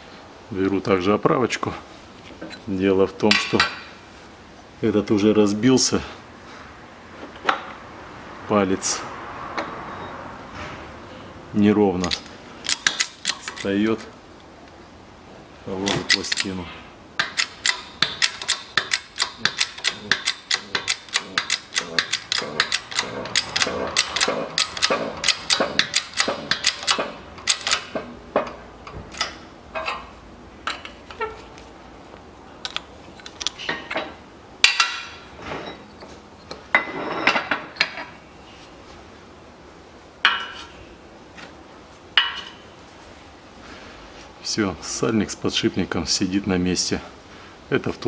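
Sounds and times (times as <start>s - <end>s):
steel tooling scraping: 17.2s - 27.9s
hydraulic press clicking and knocking: 17.2s - 30.1s
metal clanks: 17.2s - 31.4s, 32.6s - 38.2s.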